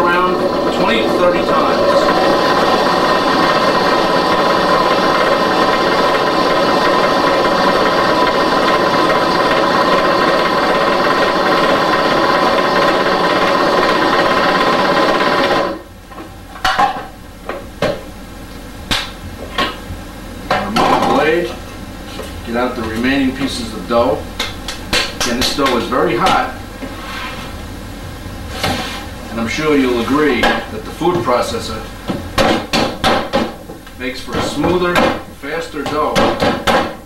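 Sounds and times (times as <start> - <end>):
food processor running: 0.0 - 15.9.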